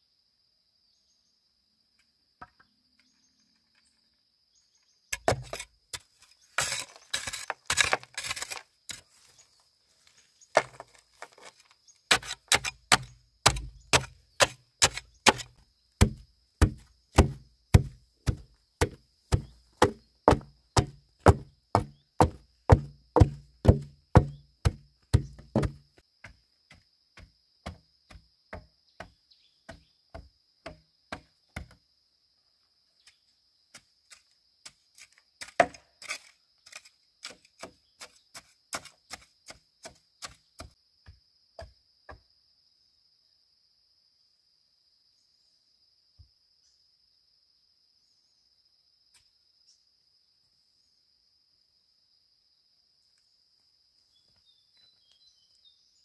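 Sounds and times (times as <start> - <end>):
hand tool chopping wood: 5.2 - 9.0, 10.6 - 31.8, 35.0 - 40.8.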